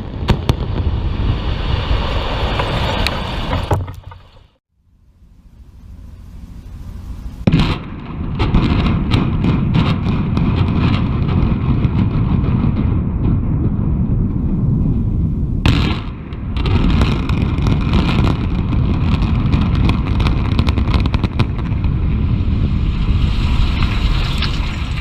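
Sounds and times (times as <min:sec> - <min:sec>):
sharp explosive blast: 0:00.0 - 0:03.9, 0:07.4 - 0:25.0
building collapsing rumble: 0:00.0 - 0:04.6, 0:07.3 - 0:25.0
low steady rumble: 0:03.5 - 0:09.4, 0:12.7 - 0:16.6
detonation cracks: 0:07.4 - 0:25.0.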